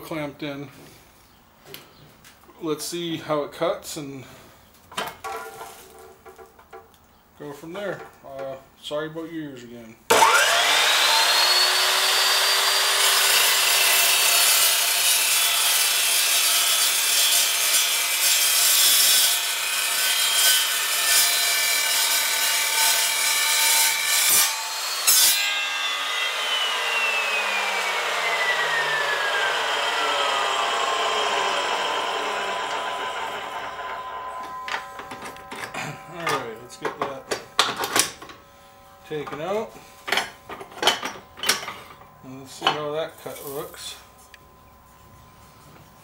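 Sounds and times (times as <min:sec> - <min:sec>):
chop saw motor whine: 0:10.1 - 0:15.0, 0:24.6 - 0:39.2
saw blade cutting metal: 0:10.1 - 0:44.3.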